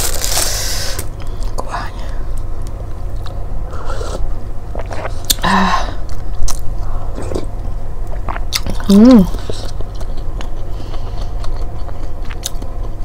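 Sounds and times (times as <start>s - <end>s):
chewing with wet mouth clicks: 8.1s - 13.0s.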